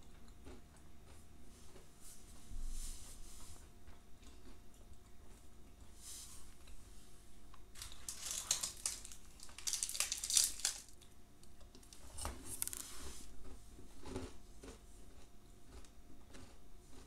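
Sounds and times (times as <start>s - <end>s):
chewing close to microphone: 3.8s - 5.9s, 11.8s - 17.0s
paper wrapper crinkling: 7.8s - 11.1s, 11.7s - 13.0s.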